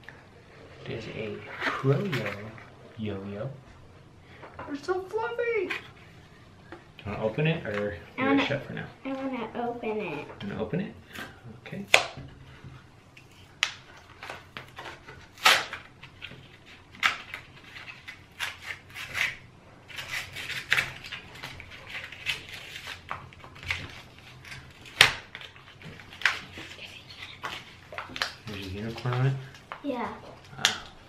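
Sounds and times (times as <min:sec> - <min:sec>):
packaging being torn open: 0:13.6 - 0:15.9.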